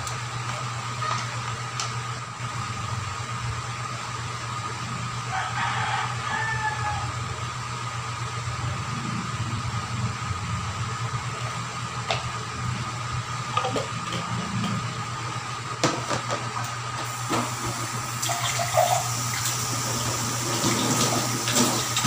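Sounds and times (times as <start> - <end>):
tap water running into sink: 17.1 - 22.0.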